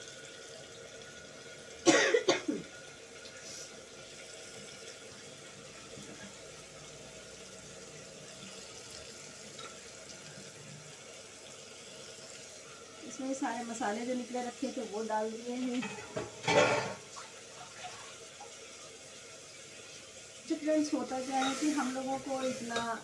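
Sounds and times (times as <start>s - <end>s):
faint hiss from pot on stove: 2.3s - 23.0s
steel plate clinking on pot rim: 15.8s - 17.0s, 21.3s - 21.8s.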